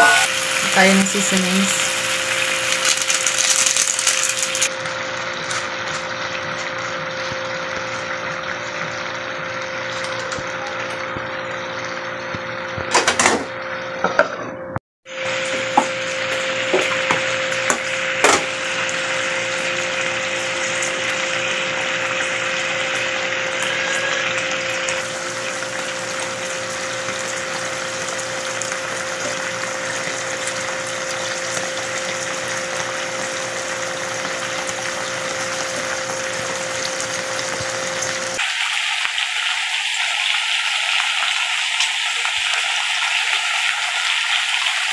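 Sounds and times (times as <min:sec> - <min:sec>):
meat sizzling in a pan: 0:00.0 - 0:12.9, 0:15.1 - 0:44.9.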